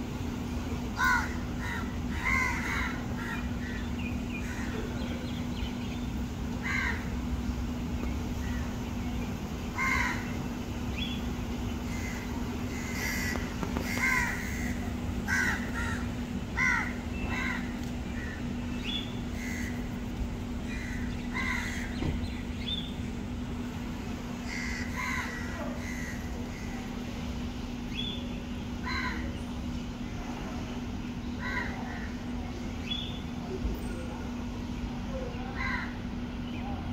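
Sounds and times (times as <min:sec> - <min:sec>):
steady low hum: 0:00.0 - 0:36.9
birds giving short calls: 0:09.7 - 0:20.0.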